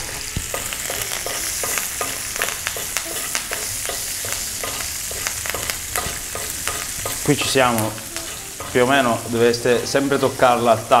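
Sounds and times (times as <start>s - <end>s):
butter sizzling in a pan: 0.0s - 11.0s
spoon clicking against pan: 0.5s - 7.4s.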